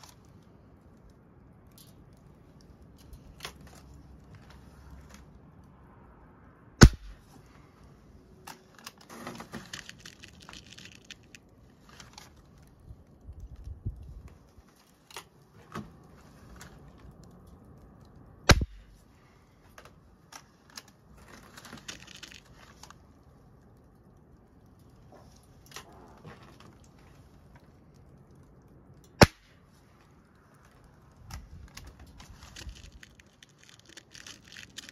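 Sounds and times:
rifle handling clicks and rustling: 0.0 - 5.4, 7.0 - 34.9
air rifle shot crack: 6.8 - 7.2, 18.5 - 18.9.

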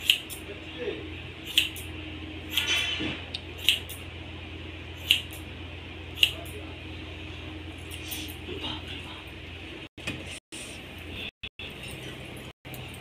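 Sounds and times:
scissors snipping hair: 0.0 - 0.4, 1.5 - 1.9, 6.2 - 6.6
low steady hum: 0.0 - 13.0.

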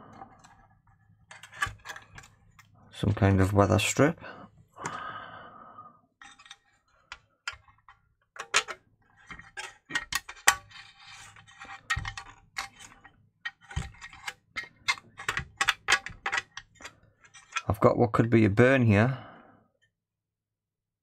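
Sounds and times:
plastic scraping: 0.0 - 2.8, 6.2 - 17.8
plastic clicks and knocks: 11.8 - 17.7.

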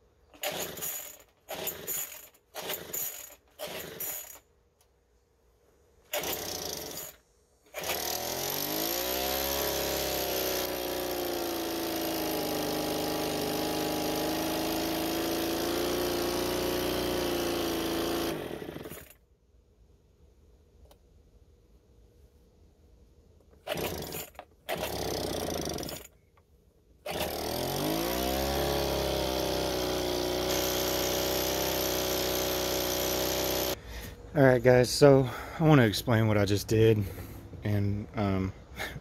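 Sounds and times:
leaf blower engine running: 0.3 - 4.4, 6.1 - 19.1, 23.6 - 26.1, 27.0 - 33.8
recoil starter pulls: 0.3 - 4.4, 6.1 - 11.0, 12.2 - 19.2, 23.5 - 26.2, 27.0 - 33.8.

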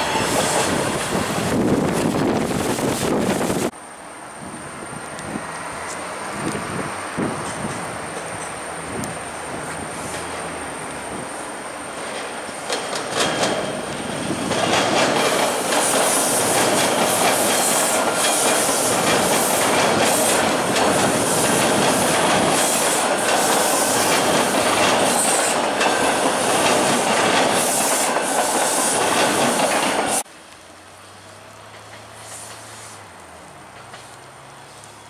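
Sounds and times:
subway train rumbling: 0.0 - 35.0
wheels clattering over rail joints: 11.9 - 30.2, 31.6 - 32.8, 33.7 - 34.4.

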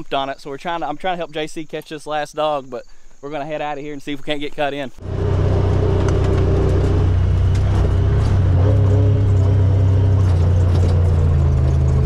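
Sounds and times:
vehicle engine humming: 5.0 - 12.0.

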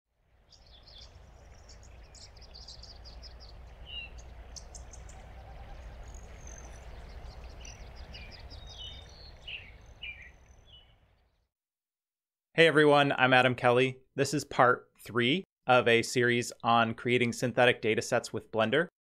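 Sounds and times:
birds chirping: 0.3 - 11.5
steady low rumble: 1.0 - 9.3.

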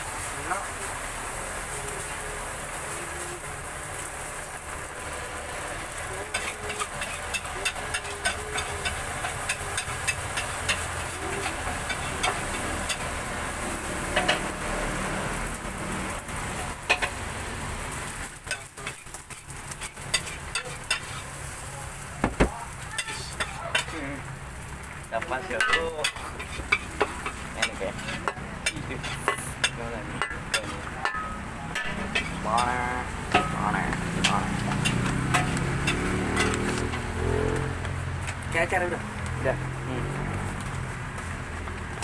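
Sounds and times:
rice sizzling in a wok: 0.0 - 42.0
metal spatula clanking on wok: 6.2 - 13.1, 16.8 - 17.2, 18.4 - 21.2, 25.5 - 37.0.

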